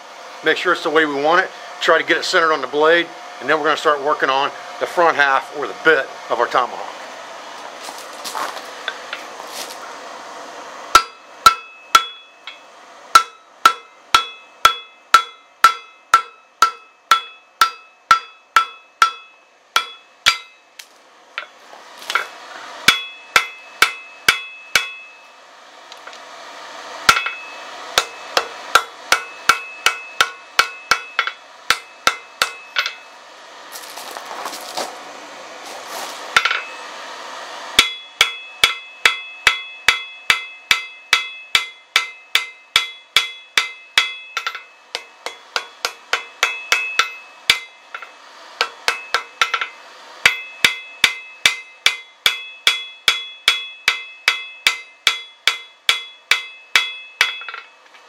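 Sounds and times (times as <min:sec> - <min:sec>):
hammer striking steel on anvil: 0:10.9 - 0:20.7, 0:21.4 - 0:25.2, 0:27.0 - 0:33.2, 0:36.3 - 0:36.8, 0:37.8 - 0:57.8.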